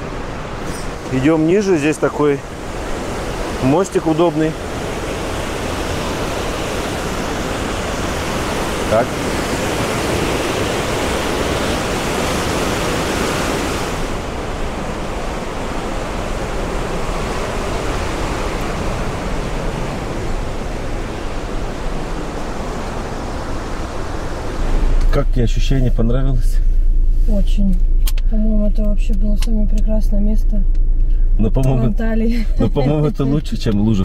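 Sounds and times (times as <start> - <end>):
waterfall rushing: 0.0 - 25.1.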